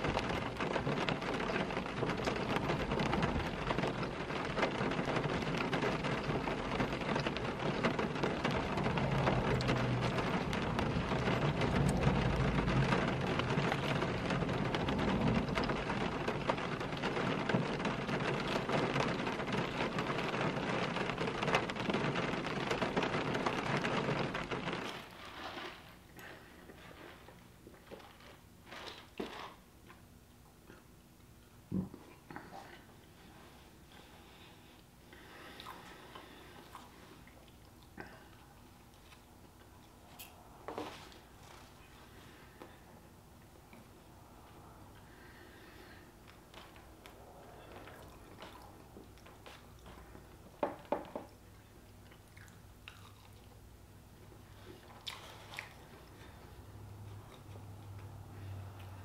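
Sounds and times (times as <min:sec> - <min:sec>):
rain drumming on car roof: 0:00.0 - 0:27.1, 0:44.6 - 0:52.8.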